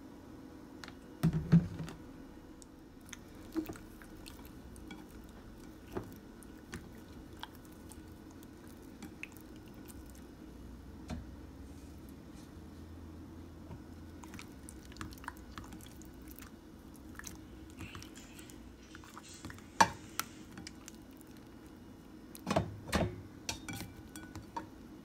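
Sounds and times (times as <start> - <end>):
wet squishing of fish in bowl: 3.0 - 10.3, 14.1 - 21.6.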